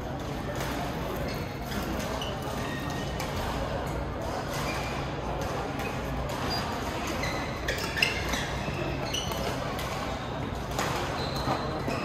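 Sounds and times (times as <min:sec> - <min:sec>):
shoe squeaks on court floor: 0:05.8 - 0:09.6, 0:11.0 - 0:12.0.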